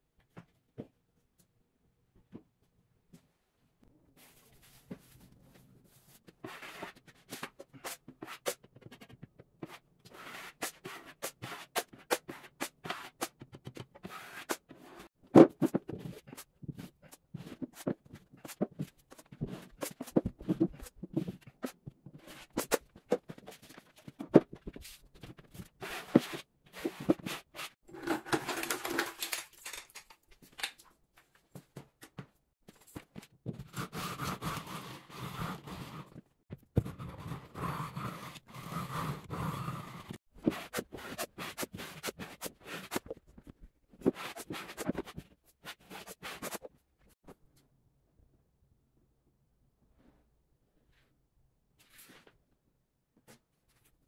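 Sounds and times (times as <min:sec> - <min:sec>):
drywall tools scraping: 0:25.8 - 0:30.1
drywall tools clicking: 0:28.0 - 0:30.9.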